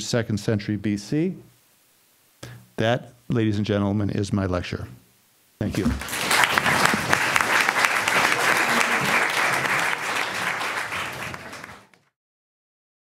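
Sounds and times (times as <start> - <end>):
audience applauding: 5.8 - 12.1.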